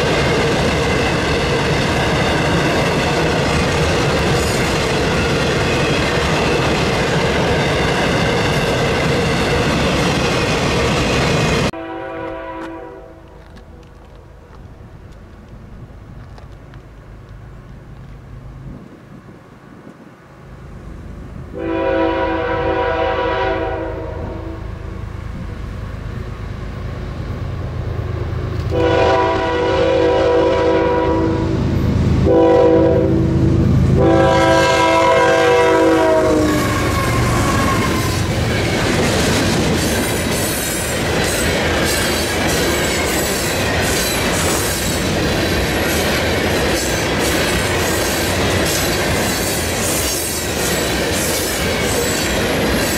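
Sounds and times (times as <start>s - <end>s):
train horn blasts: 11.7s - 13.3s, 21.5s - 24.9s, 28.7s - 31.6s, 32.2s - 38.2s.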